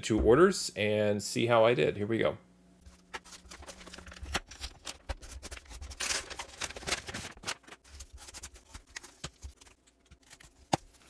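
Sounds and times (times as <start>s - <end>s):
envelope rustling: 2.9s - 11.0s.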